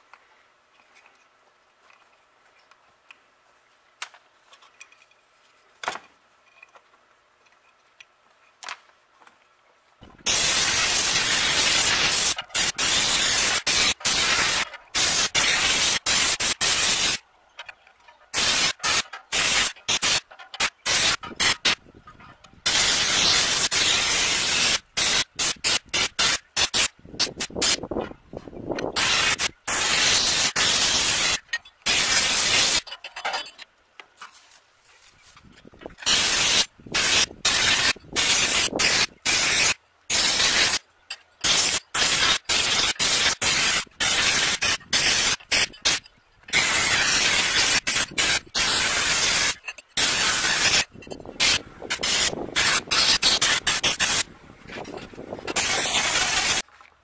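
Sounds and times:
sandblasting gun hissing: 10.2s - 17.2s, 18.4s - 21.8s, 22.7s - 27.8s, 29.0s - 32.8s, 36.0s - 40.8s, 41.4s - 54.2s, 55.5s - 56.6s.

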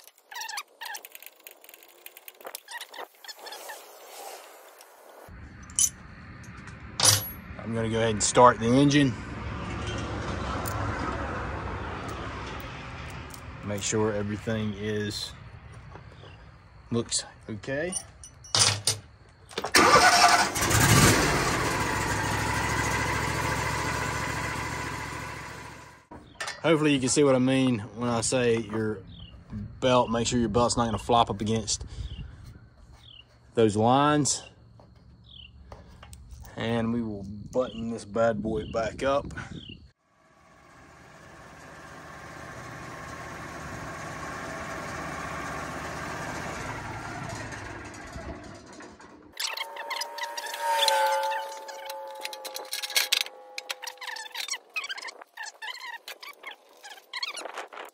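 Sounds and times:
sawmill engine cranking and running: 17.7s - 31.6s, 40.1s - 56.8s.

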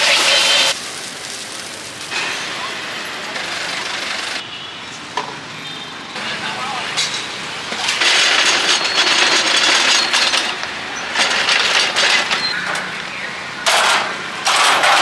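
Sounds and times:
food sizzling: 0.0s - 3.9s.

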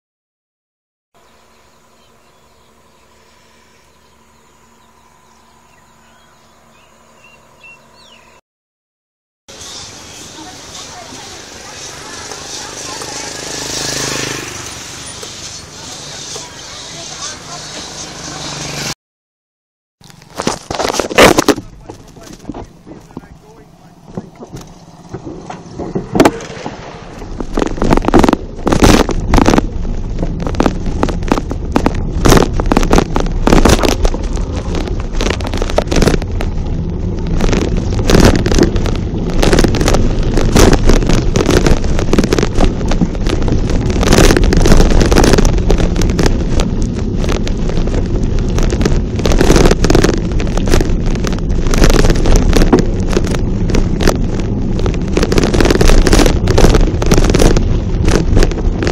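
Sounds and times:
wind buffeting microphone: 20.8s - 58.9s.

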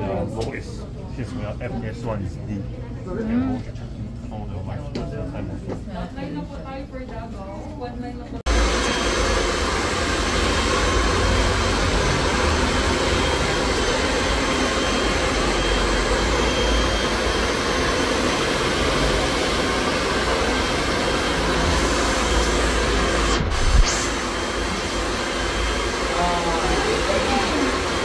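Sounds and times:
blown air rushing: 8.5s - 28.0s.

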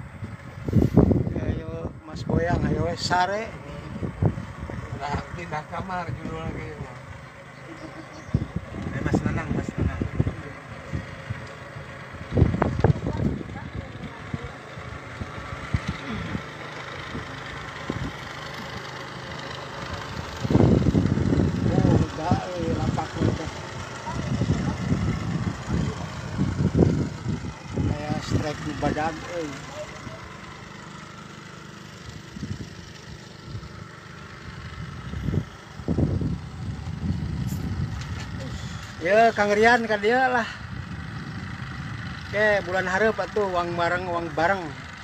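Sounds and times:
boat engine running: 0.0s - 45.0s.

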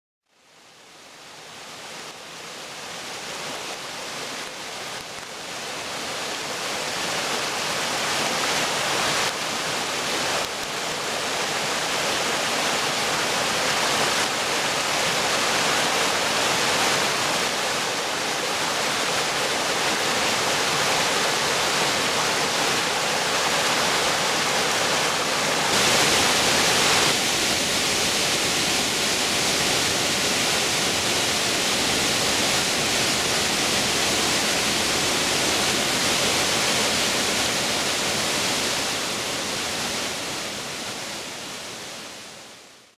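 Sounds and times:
waterfall rushing over rocks: 0.4s - 42.9s.

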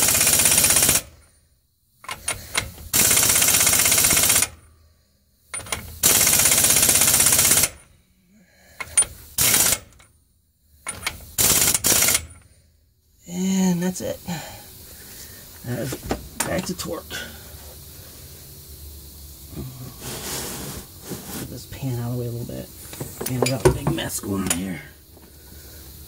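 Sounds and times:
air impact wrench hammering: 0.0s - 1.2s, 2.0s - 4.6s, 5.6s - 7.9s, 8.8s - 10.0s, 10.9s - 12.4s.

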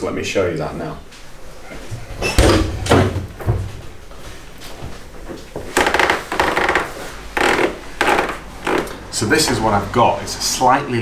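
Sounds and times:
rustling and scuffing: 3.2s - 5.8s.

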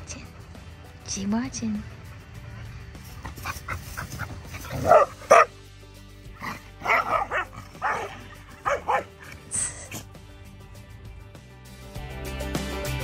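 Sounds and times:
background music: 0.0s - 13.0s
dogs barking and yipping: 2.1s - 5.6s, 6.3s - 10.1s.

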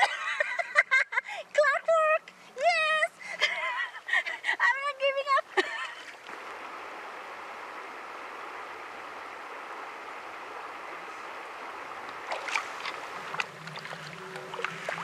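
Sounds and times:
river water flowing over stones: 2.0s - 15.0s
short water splashes: 11.4s - 15.0s.

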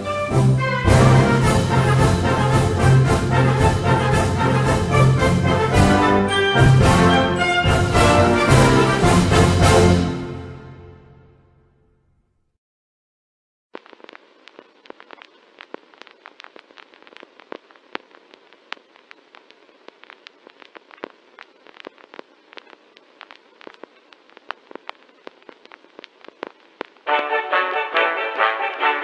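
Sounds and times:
film crackles and pops: 0.9s - 9.8s, 13.8s - 29.0s
thin film hiss: 13.8s - 29.0s.

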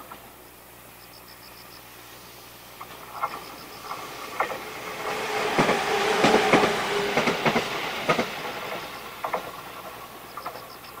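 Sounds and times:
steady train tone: 0.0s - 11.0s
train wheels clacking over rail joints: 2.8s - 11.0s.

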